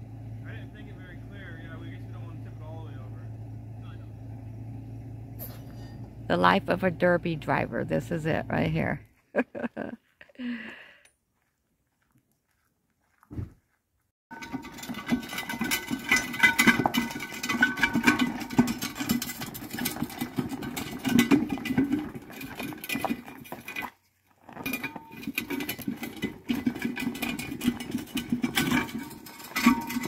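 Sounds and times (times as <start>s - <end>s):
gravel crunching: 0.0s - 30.0s
steel car frame rattling: 14.3s - 30.0s.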